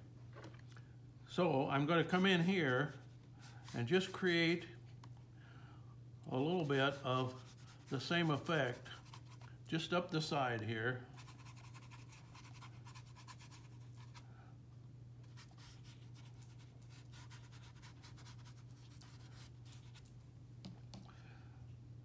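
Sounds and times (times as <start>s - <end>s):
brush scratching on paper: 6.6s - 9.5s, 11.2s - 14.2s, 15.3s - 20.1s.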